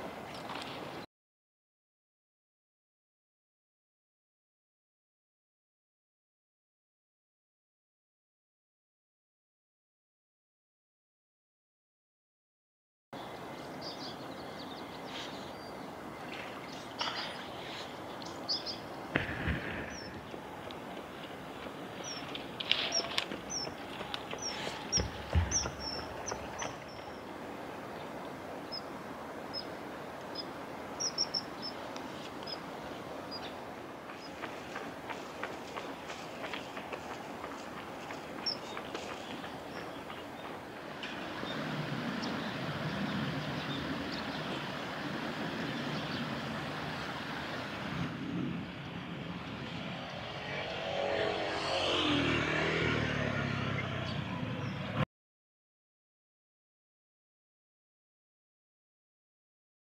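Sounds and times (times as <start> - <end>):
shallow stream rushing: 13.2 - 48.2
traffic noise: 13.2 - 55.0
passing vehicle engine: 47.3 - 55.0.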